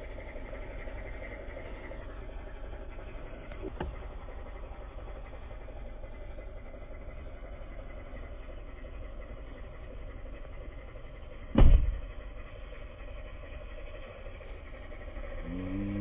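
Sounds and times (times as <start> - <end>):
truck engine idling: 0.0 - 16.0
truck door slamming: 11.5 - 12.0.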